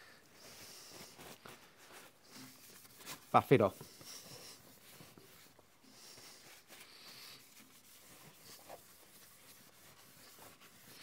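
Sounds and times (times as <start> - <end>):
tissue paper rubbing metal: 0.4 - 11.0.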